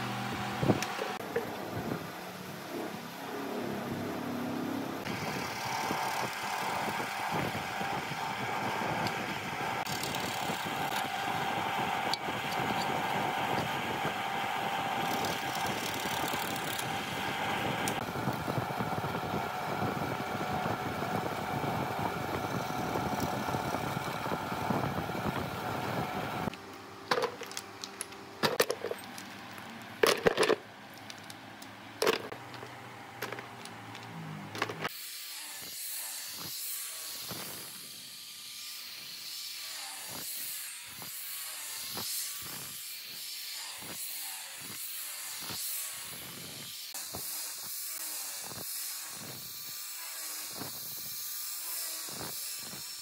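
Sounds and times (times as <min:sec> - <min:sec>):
drill press boring into wood: 0:05.1 - 0:18.5
wooden blocks dropped into bucket: 0:27.1 - 0:31.4.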